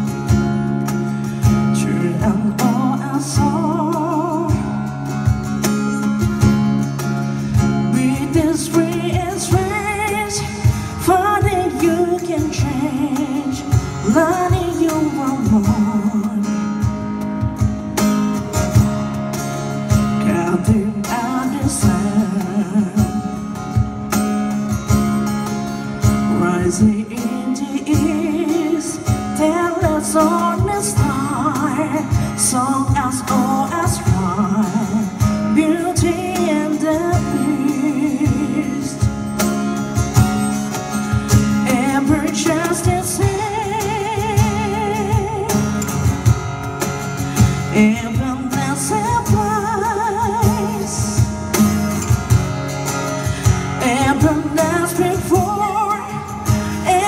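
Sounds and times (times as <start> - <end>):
person singing with vibrato: 0.0 - 17.6, 19.6 - 24.1, 26.0 - 40.1, 40.7 - 52.3, 52.9 - 57.0
plucked guitar: 0.0 - 57.0
cajon beats: 38.2 - 57.0.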